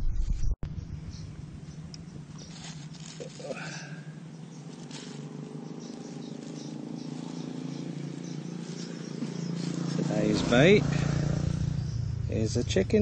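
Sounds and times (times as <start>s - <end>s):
vehicle engine humming: 0.7s - 13.0s.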